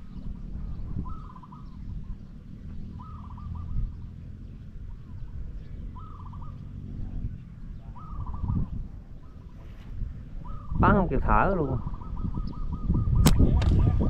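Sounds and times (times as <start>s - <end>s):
bird calling: 0.0s - 13.3s
steady low rumble: 0.0s - 14.0s.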